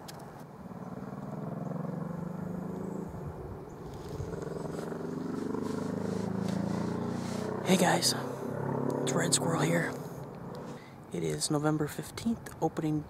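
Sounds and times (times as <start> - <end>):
engine droning with hum: 0.0 - 13.0.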